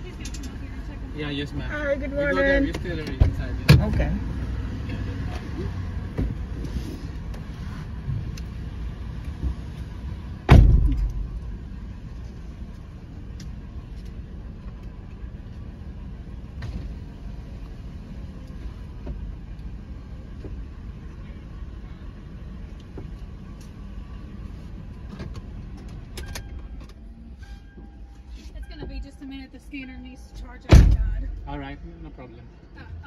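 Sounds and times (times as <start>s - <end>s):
car engine idling: 0.0s - 33.0s
car door slamming: 10.4s - 11.4s, 30.6s - 31.5s.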